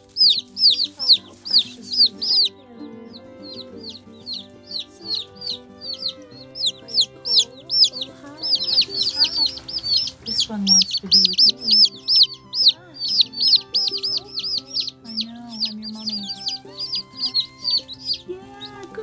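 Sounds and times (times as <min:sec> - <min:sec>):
chicks peeping: 0:00.0 - 0:19.0.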